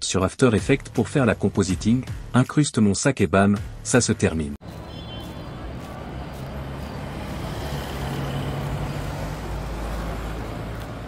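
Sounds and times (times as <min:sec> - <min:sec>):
road traffic rumble and hiss: 0:04.6 - 0:11.0.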